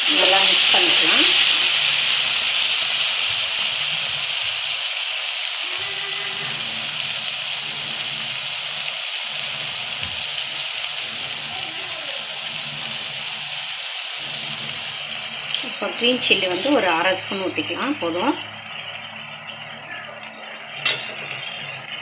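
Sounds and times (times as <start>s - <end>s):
vegetables sizzling in a pan: 0.0s - 22.0s
metal spatula clinking on pan: 20.7s - 22.0s.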